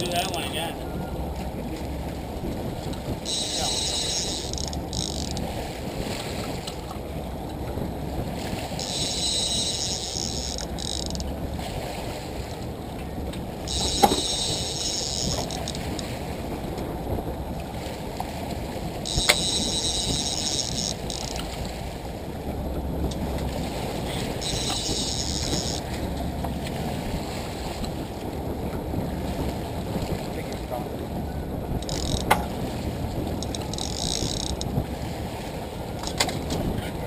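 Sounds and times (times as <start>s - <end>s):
boat engine rumble: 0.0s - 37.0s
water noise: 0.0s - 37.0s
sharp clicks: 33.4s - 34.7s.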